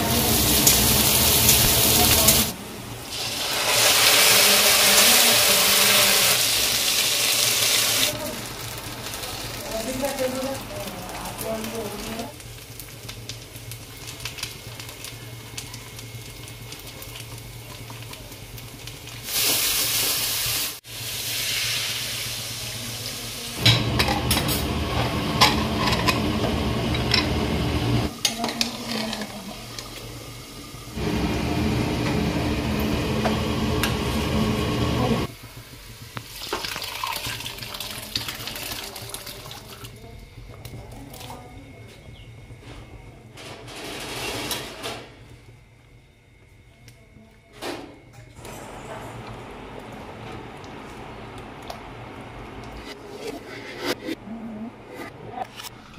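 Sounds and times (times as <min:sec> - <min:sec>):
utensils clinking in a pan: 0:28.2 - 0:30.1.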